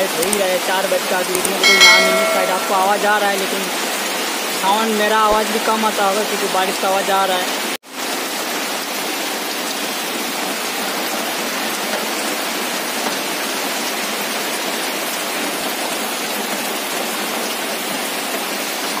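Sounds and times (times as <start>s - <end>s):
heavy rain pouring on foliage: 2.9s - 19.0s.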